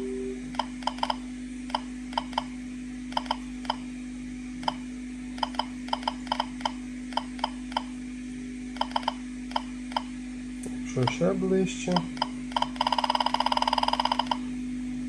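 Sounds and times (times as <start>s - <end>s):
low steady hum: 0.0s - 15.0s
geiger counter clicking: 0.5s - 3.8s, 4.6s - 4.8s, 5.4s - 8.0s, 8.8s - 10.2s, 11.0s - 11.3s, 11.9s - 14.4s.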